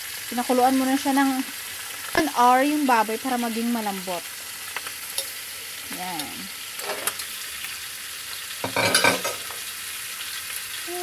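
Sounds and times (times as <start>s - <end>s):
meat sizzling in a wok: 0.0s - 11.0s
clatter in a wok: 6.8s - 7.3s, 8.6s - 9.7s.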